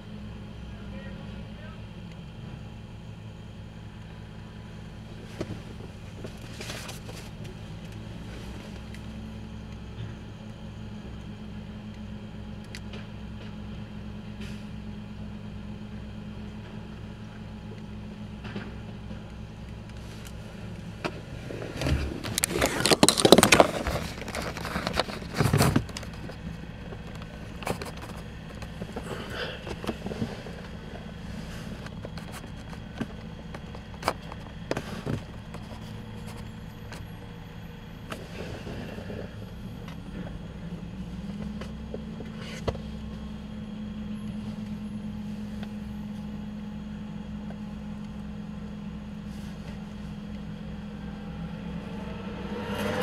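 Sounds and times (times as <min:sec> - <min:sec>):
garbage truck running: 0:00.0 - 0:53.0
hydraulic packer compacting trash: 0:17.7 - 0:48.0
trash crunching and cracking: 0:18.4 - 0:37.4
knocks and clunks: 0:20.8 - 0:37.3.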